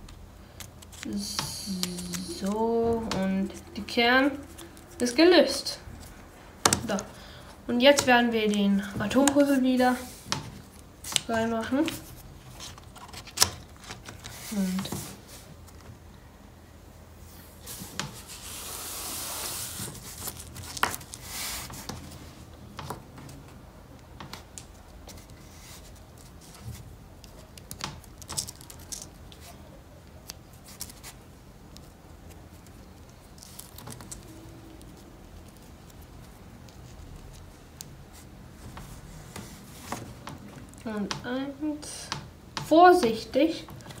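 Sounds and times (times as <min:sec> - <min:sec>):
rubbing and rustling: 0:00.6 - 0:16.1, 0:17.2 - 0:23.5, 0:24.2 - 0:41.1
wooden pieces clicking: 0:27.2 - 0:29.2.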